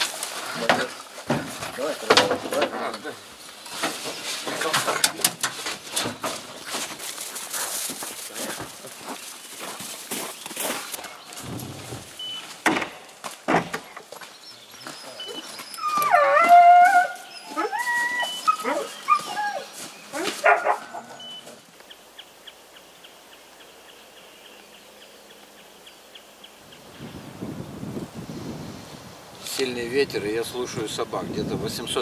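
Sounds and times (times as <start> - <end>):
footsteps crunching on snow: 0.0 - 2.0, 5.5 - 21.7
dog yelping and barking: 15.2 - 21.6.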